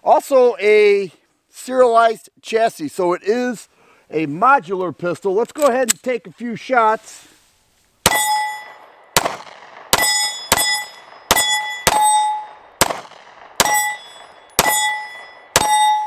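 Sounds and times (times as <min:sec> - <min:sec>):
pistol shots: 0:08.0 - 0:16.0
steel plate target ringing: 0:08.1 - 0:08.9, 0:10.0 - 0:12.6, 0:13.6 - 0:16.0.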